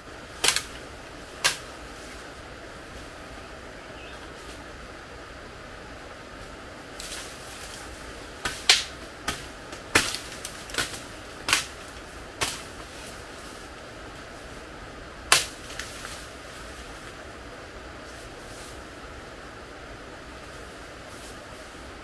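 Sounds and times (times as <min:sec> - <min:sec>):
steady rushing noise: 0:00.0 - 0:22.0
dry bamboo cracking and snapping: 0:00.3 - 0:01.8, 0:07.0 - 0:13.4, 0:15.3 - 0:16.3.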